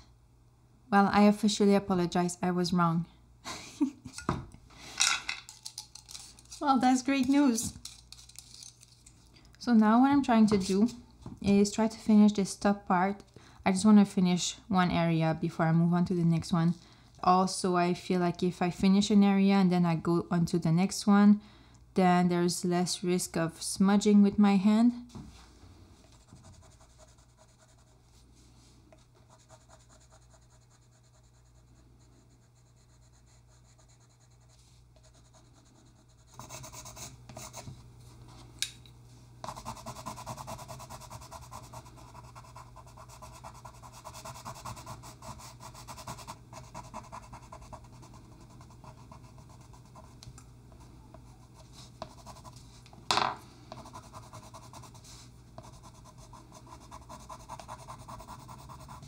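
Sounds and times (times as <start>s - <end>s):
pencil scratching on paper: 26.1s - 27.9s, 29.3s - 37.6s, 39.4s - 50.1s, 51.4s - 52.6s, 53.7s - 59.0s.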